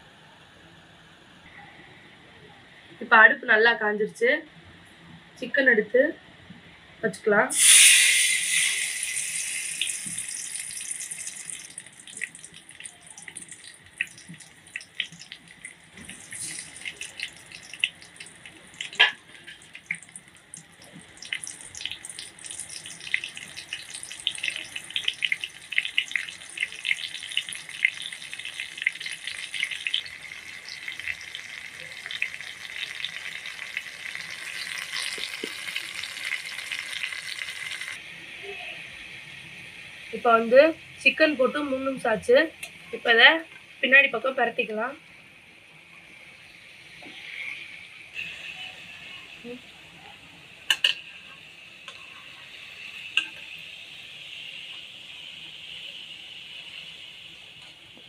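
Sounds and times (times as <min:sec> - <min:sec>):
chicken sizzling in hot oil: 0:07.5 - 0:38.0
oil spitting and popping: 0:07.6 - 0:37.9.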